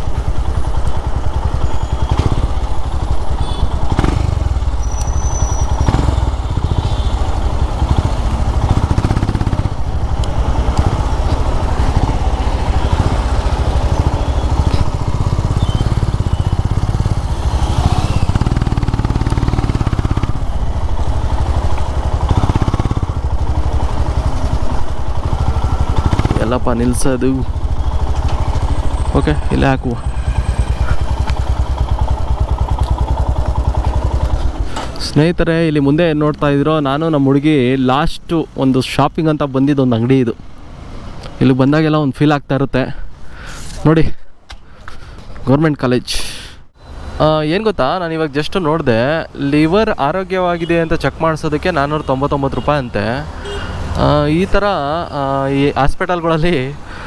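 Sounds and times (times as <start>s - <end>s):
motorcycle engine running: 0.0s - 35.1s, 50.1s - 55.4s.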